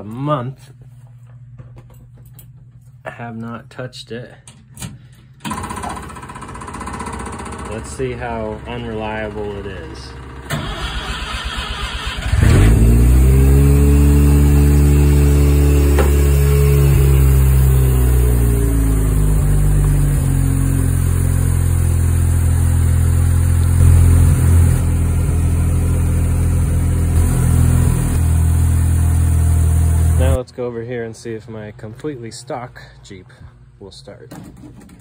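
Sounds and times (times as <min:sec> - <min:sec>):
engine starter cranking: 0:10.4 - 0:12.9.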